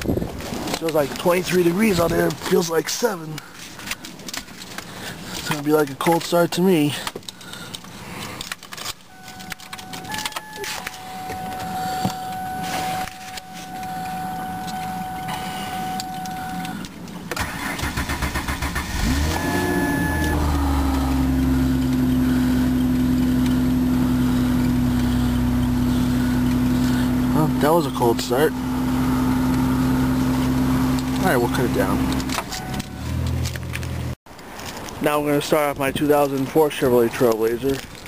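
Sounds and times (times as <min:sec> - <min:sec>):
car engine idling: 0:06.9 - 0:34.2
clicks: 0:07.0 - 0:17.4, 0:30.9 - 0:35.0
steady high tone: 0:09.1 - 0:16.8, 0:19.2 - 0:22.5
starter motor cranking: 0:14.7 - 0:34.1.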